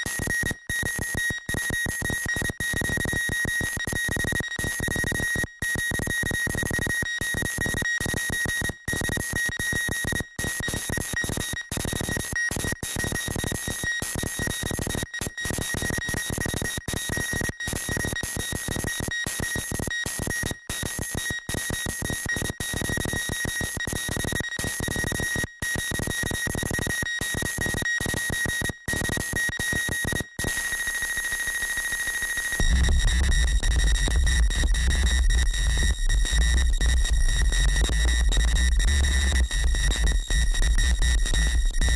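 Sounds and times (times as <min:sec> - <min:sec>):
bass: 0:32.6 - 0:41.9
crackling noise texture: 0:32.6 - 0:41.9
glitchy electronic music: 0:32.6 - 0:41.9.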